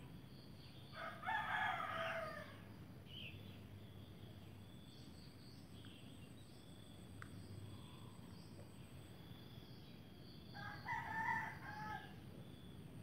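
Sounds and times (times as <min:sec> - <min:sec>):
faint insect chirping: 0:00.0 - 0:13.0
rooster crowing: 0:01.0 - 0:02.6, 0:10.6 - 0:12.2.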